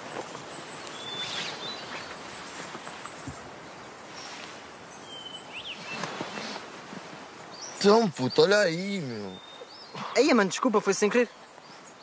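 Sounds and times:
faint bird chirps: 0.0 - 3.5, 7.5 - 12.0
steady background hiss: 0.0 - 12.0
light rustling: 5.7 - 7.8.

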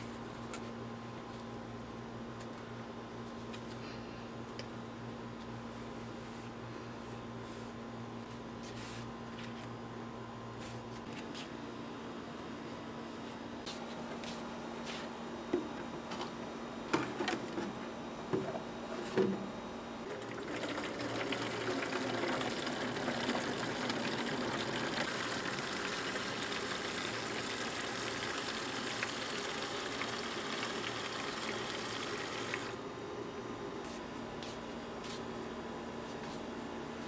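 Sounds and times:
water filling watering can: 20.0 - 32.8.

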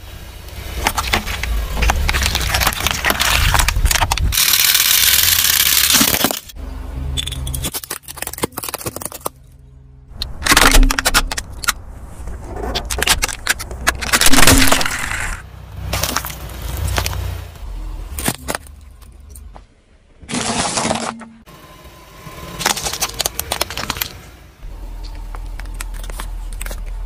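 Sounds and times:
tyres crushing plastic bottles: 0.7 - 6.6, 7.5 - 9.4, 10.2 - 11.8, 12.8 - 17.2, 20.2 - 21.4, 22.6 - 24.2.

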